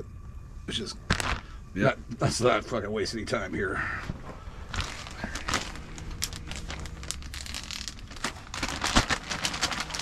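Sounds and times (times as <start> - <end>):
plastic packaging crinkling: 1.1 - 1.4, 4.6 - 10.0.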